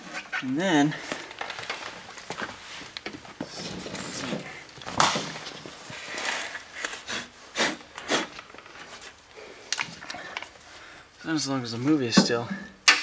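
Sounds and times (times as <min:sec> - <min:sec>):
sharp puffs of breath: 0:06.8 - 0:08.3.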